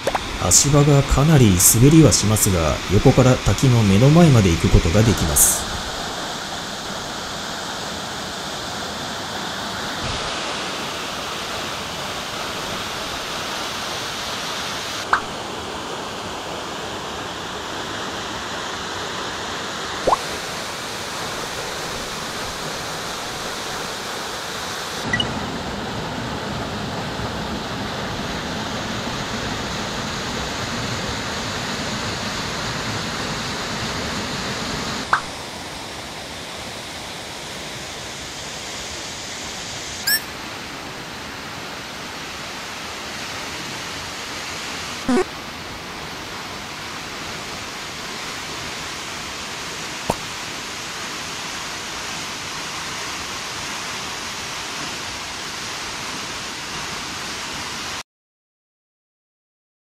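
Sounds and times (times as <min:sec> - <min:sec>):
waterfall rushing: 0:00.0 - 0:25.6.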